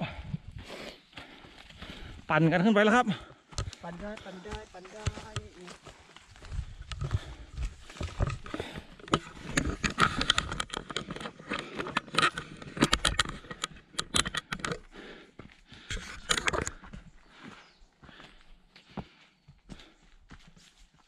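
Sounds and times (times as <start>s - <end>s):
footsteps on a trail: 0.0s - 21.0s.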